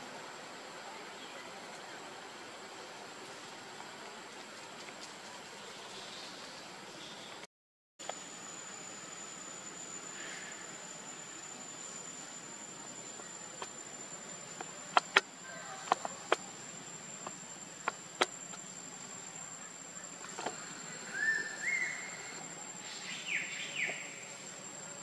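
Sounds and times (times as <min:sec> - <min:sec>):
high insect drone: 0:08.0 - 0:25.0.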